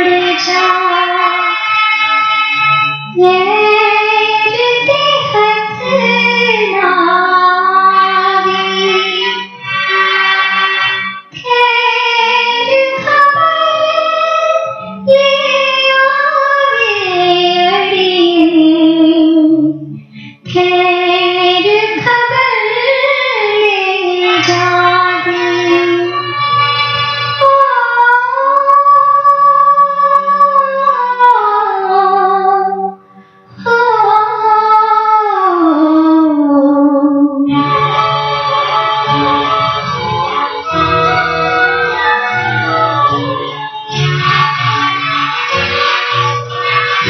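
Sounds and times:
woman singing: 0.0s - 1.8s, 3.1s - 9.4s, 11.4s - 26.4s, 27.4s - 33.0s, 33.6s - 37.8s
slow melodic music: 22.5s - 47.0s
low instrumental accompaniment: 35.8s - 47.0s.

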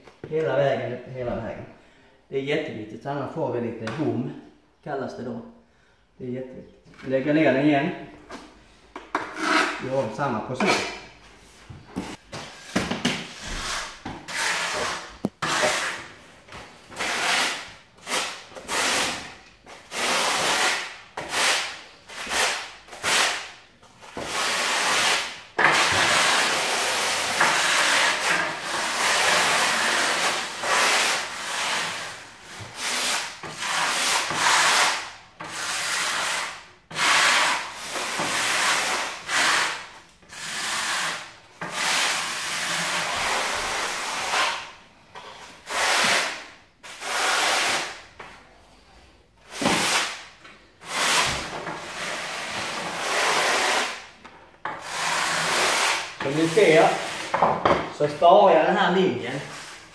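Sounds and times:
trowel scraping tile adhesive: 9.0s - 11.2s, 12.6s - 16.2s, 16.9s - 48.2s, 48.8s - 57.7s.

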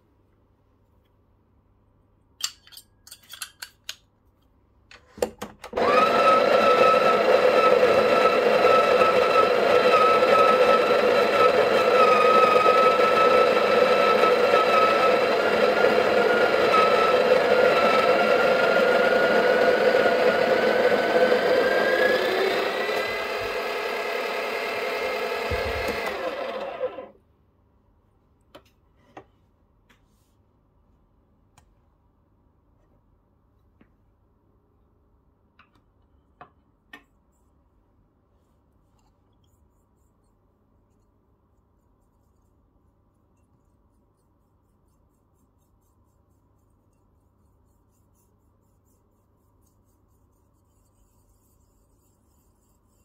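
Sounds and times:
coffee grinder motor whine: 5.7s - 27.2s.

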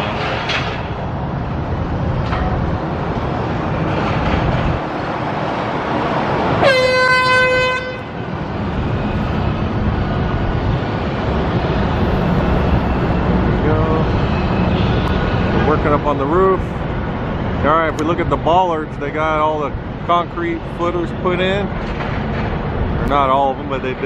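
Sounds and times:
horn blast: 6.6s - 8.2s.

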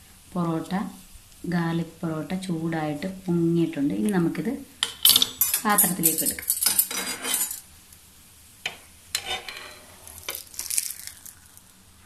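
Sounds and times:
frying sizzle: 0.0s - 12.0s
metal spatula scraping pan: 5.0s - 7.6s, 8.7s - 10.4s.

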